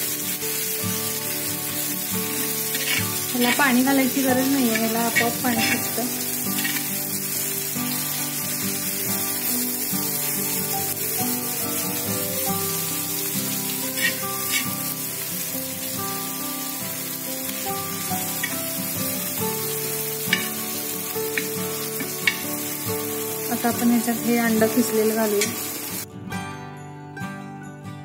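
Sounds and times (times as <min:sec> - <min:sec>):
masala sizzling in a pan: 0:00.0 - 0:26.1
background music: 0:00.0 - 0:28.0
steel spatula scraping a pan: 0:02.2 - 0:07.4, 0:13.6 - 0:15.0, 0:20.3 - 0:20.6, 0:21.4 - 0:22.4.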